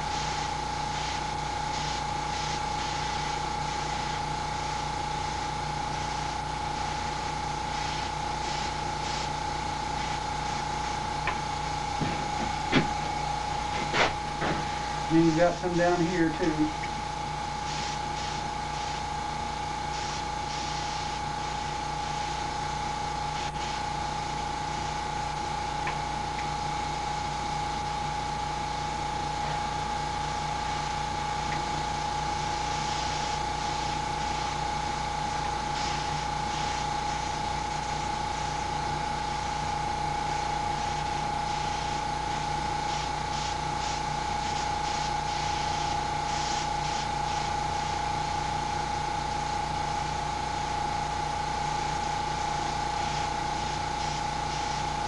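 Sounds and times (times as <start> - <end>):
airbrush hissing: 0.0 - 25.0, 31.4 - 39.6, 40.2 - 48.0, 52.0 - 55.0
compressor humming: 0.0 - 55.0.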